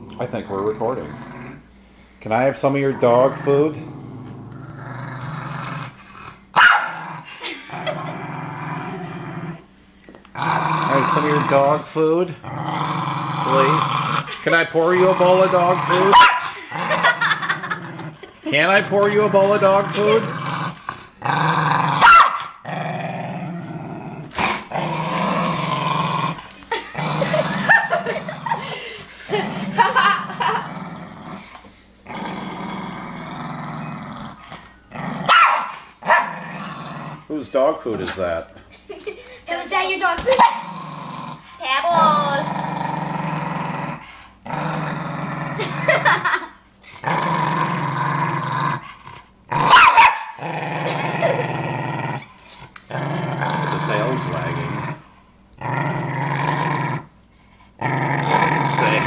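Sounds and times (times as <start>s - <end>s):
dog growling: 0.0s - 9.7s, 10.3s - 38.6s, 40.2s - 57.2s, 57.8s - 59.0s
dog snarling: 10.3s - 37.3s, 40.2s - 57.1s, 57.8s - 59.0s.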